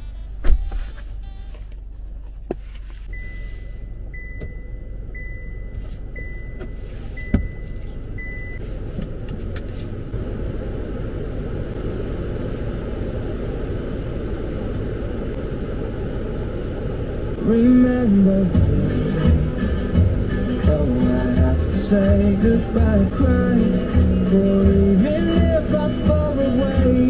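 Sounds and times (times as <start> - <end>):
car engine idling: 0.0 - 27.0
car warning chime beeping: 3.1 - 8.6.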